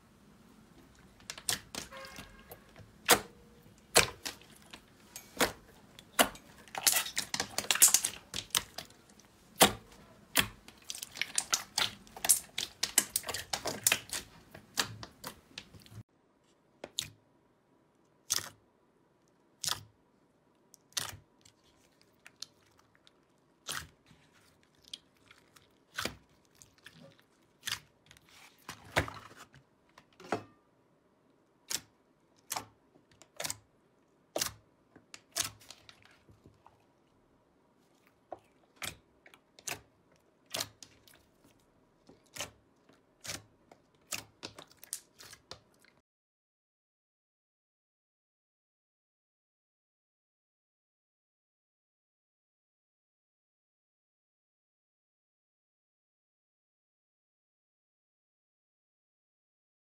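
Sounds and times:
slime clicking and popping: 5.4s - 16.0s.

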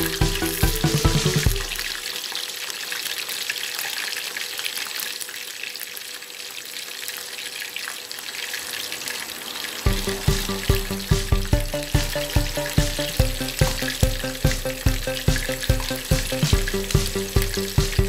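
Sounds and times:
background music with a beat: 0.0s - 2.0s, 9.9s - 18.0s
chicken deep-frying in oil: 0.0s - 18.0s.

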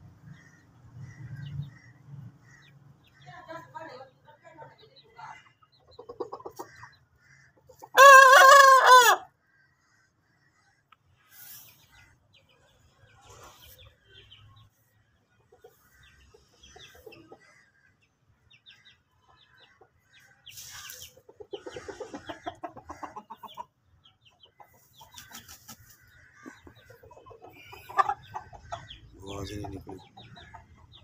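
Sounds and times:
rooster clucking: 20.9s - 23.8s, 24.5s - 31.0s.

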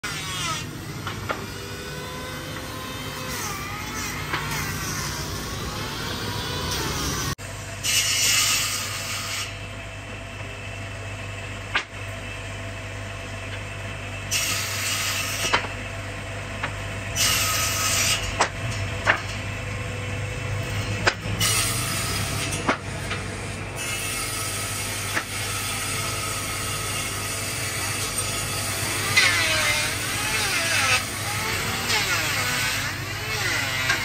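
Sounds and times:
table saw cutting wood: 0.0s - 9.6s, 14.3s - 15.8s, 16.6s - 19.4s, 20.5s - 34.0s.

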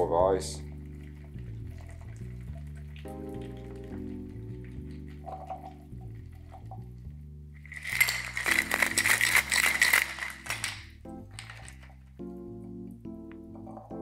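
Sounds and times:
soft background music: 0.0s - 14.0s
ice rattling in cocktail shaker: 4.9s - 5.9s, 7.6s - 12.1s.

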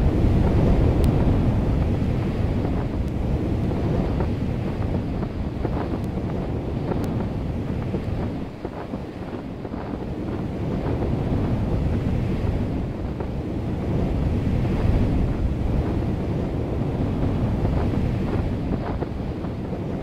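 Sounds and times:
wind blowing over microphone: 0.0s - 20.0s.

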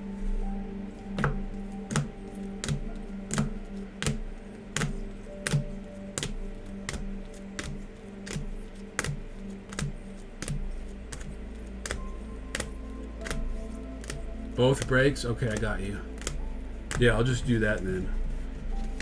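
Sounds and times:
quiet music: 0.0s - 19.0s
plastic card holders clicking: 14.0s - 14.2s.

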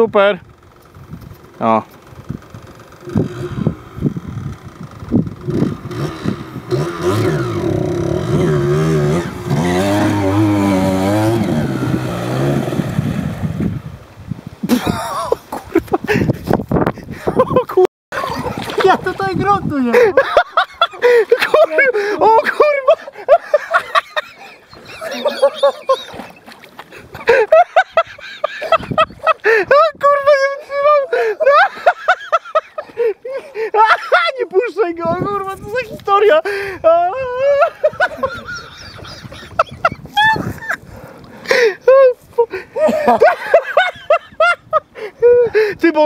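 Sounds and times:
dirt bike engine revving: 0.5s - 14.0s
men making vocal sounds: 18.2s - 32.1s.

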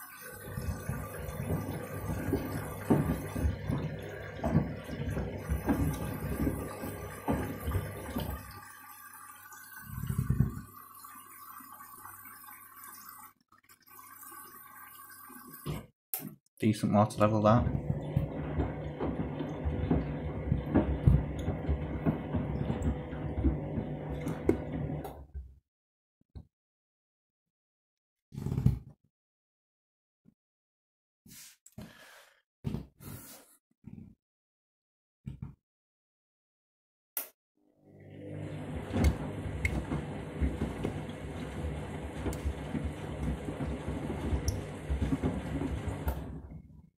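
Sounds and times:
washing machine motor humming: 0.0s - 10.8s, 17.2s - 25.2s, 37.7s - 46.6s
water sloshing: 0.4s - 8.6s, 17.7s - 25.0s, 38.4s - 46.4s.

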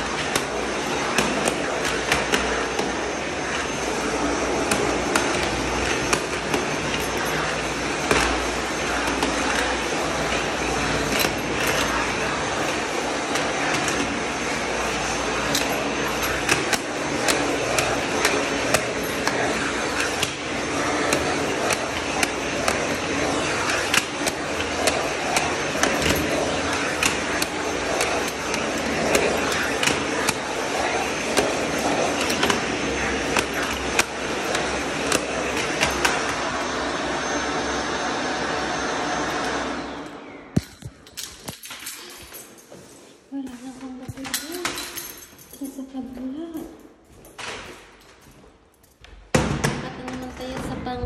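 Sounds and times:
vacuum cleaner running: 0.0s - 51.0s.

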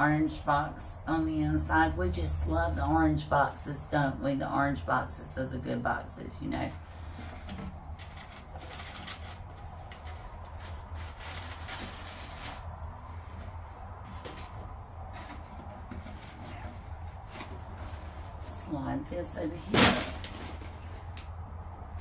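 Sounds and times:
steady low hum: 0.0s - 22.0s
tissue paper rustling: 6.9s - 13.6s.

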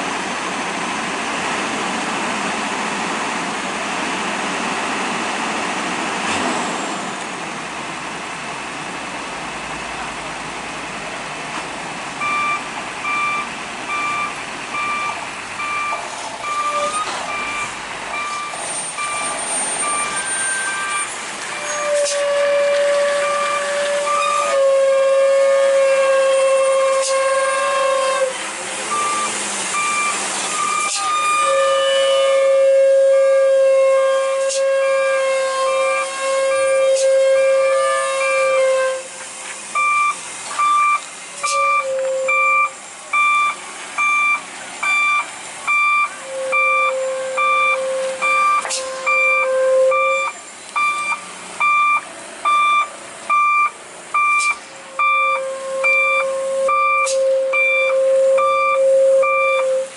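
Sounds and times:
engine and road noise: 0.0s - 59.9s
vehicle alarm beeping: 12.2s - 24.6s, 28.9s - 32.5s, 39.8s - 59.9s
truck brakes squealing: 12.2s - 33.6s, 34.2s - 59.9s.

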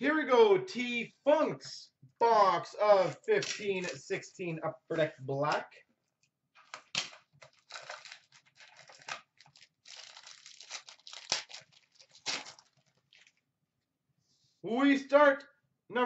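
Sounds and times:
box packaging rustling: 6.6s - 13.4s
plastic wrapper crinkling and tearing: 6.6s - 13.5s.

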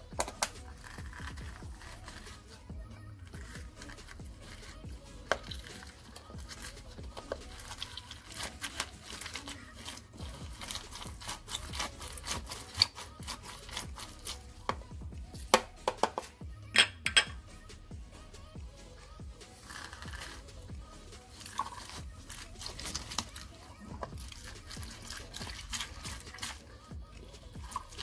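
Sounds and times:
lemon pressed on plastic juicer: 0.2s - 2.4s, 5.2s - 17.3s.

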